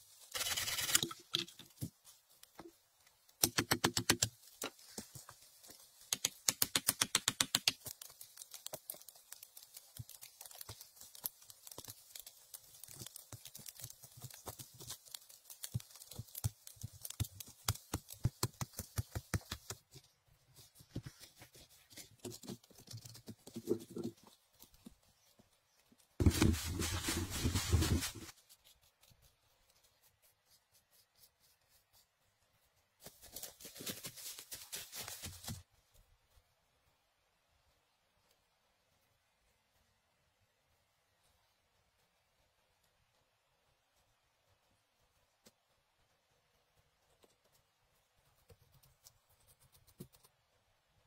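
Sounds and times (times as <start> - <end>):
dry leaves crunching and rustling: 26.2 - 28.4.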